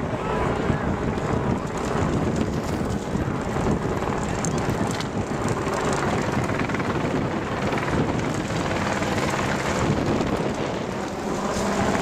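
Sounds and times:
wind on microphone: 0.0 - 12.0
vehicles passing: 7.6 - 12.0.

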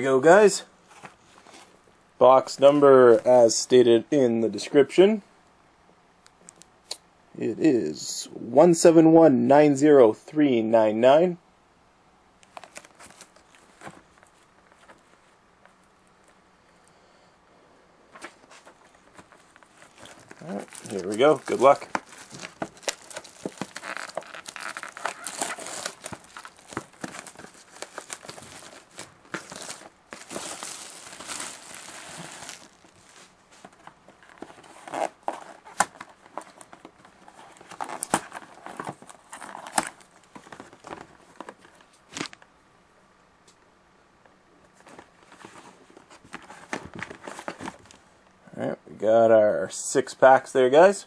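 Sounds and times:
rustling: 12.4 - 16.4, 18.1 - 42.4, 44.6 - 48.0
plastic wrap crackling: 18.9 - 42.4.

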